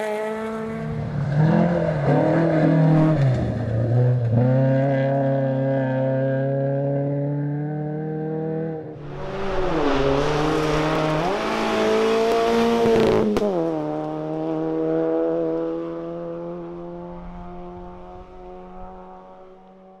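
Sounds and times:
rally car engine accelerating: 0.0s - 20.0s
tyre and road noise: 8.9s - 15.5s.

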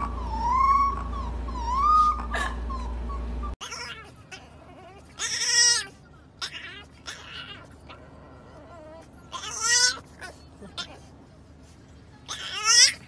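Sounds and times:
puppy howling: 0.0s - 10.0s.

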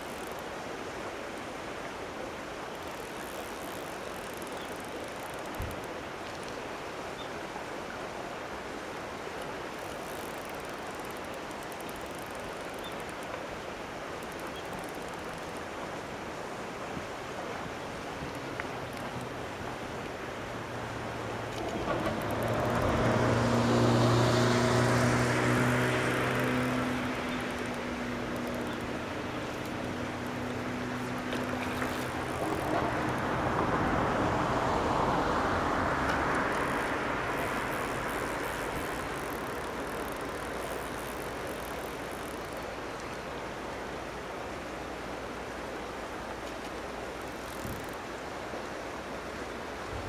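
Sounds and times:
outdoor background noise: 0.0s - 50.0s
engine hum: 18.3s - 44.6s.

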